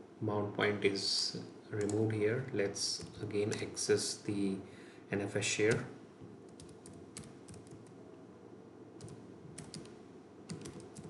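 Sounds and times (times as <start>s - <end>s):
keyboard typing: 6.5s - 8.0s, 9.0s - 11.0s.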